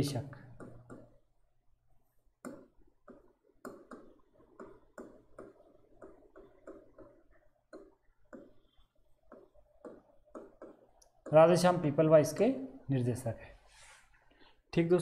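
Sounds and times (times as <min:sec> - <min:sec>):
pen scratching on board: 0:02.4 - 0:11.2.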